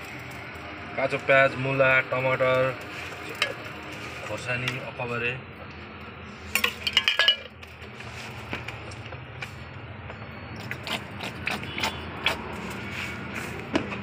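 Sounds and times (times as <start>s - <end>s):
utensils clicking and clinking: 6.6s - 7.9s.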